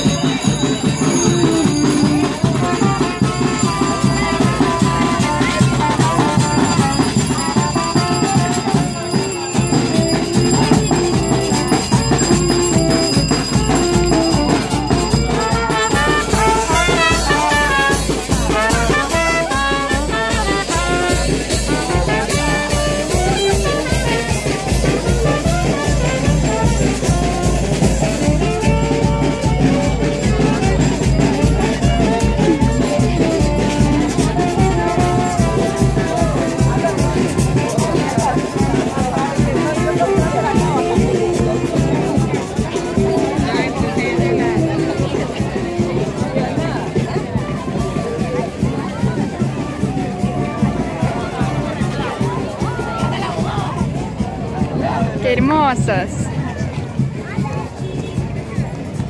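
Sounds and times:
bass drum beat: 0:00.0 - 0:46.2
brass band playing: 0:00.0 - 0:46.8.

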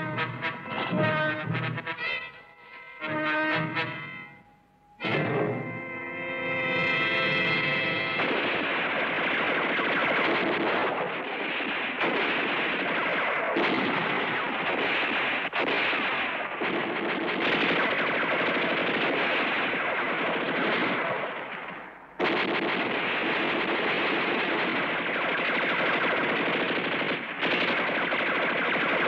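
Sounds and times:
rifle shots: 0:06.6 - 0:29.0
machine-gun fire: 0:06.9 - 0:29.0.

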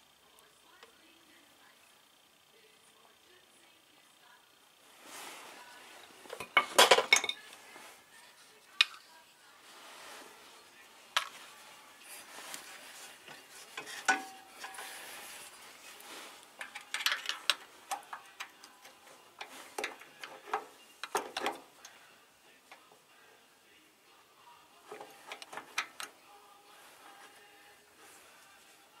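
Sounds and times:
metal tools clinking and scraping: 0:06.3 - 0:07.5, 0:12.2 - 0:21.9.

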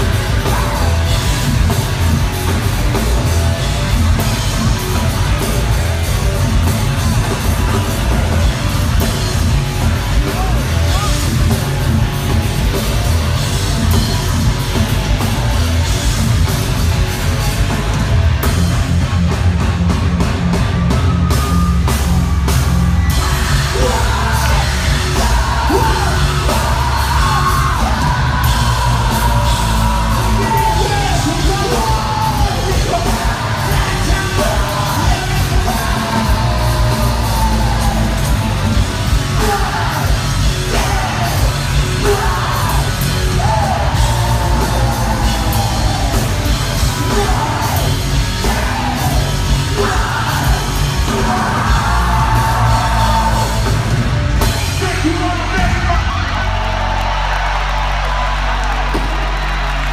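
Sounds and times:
yelled vocals: 0:00.0 - 0:20.2, 0:21.5 - 0:59.9
metal band playing: 0:00.0 - 0:59.9.

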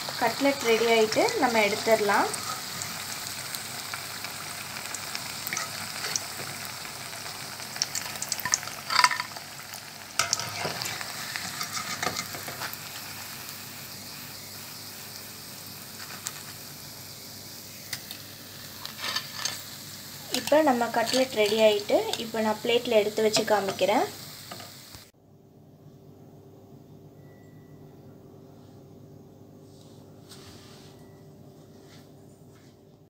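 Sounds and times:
food sizzling in hot oil: 0:00.0 - 0:25.1
wire skimmer scraping metal pot: 0:10.2 - 0:12.7, 0:18.8 - 0:19.6, 0:20.3 - 0:22.1.

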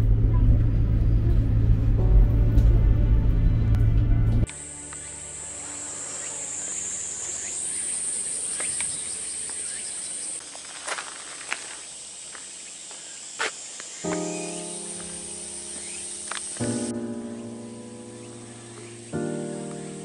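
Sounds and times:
insects droning: 0:04.5 - 0:20.0.

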